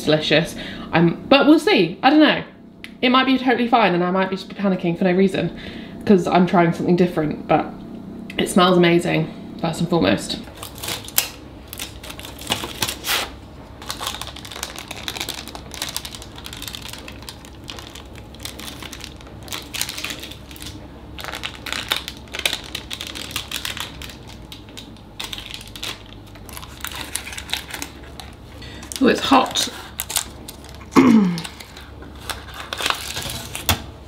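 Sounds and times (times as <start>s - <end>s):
baking parchment rustling: 10.5s - 33.9s.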